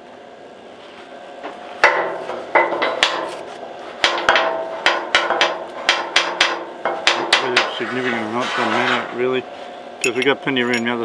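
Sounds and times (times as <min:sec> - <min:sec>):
hammer striking steel: 0:01.8 - 0:03.4, 0:04.0 - 0:07.8.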